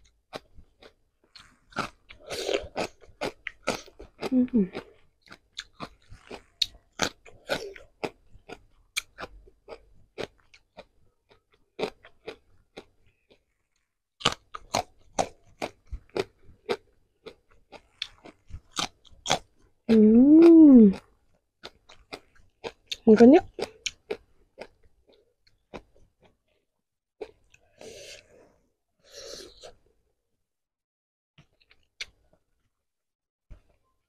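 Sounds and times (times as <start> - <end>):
crunching and chewing food: 0.0 - 28.3, 31.4 - 32.8
person humming: 4.3 - 4.7, 19.9 - 21.0.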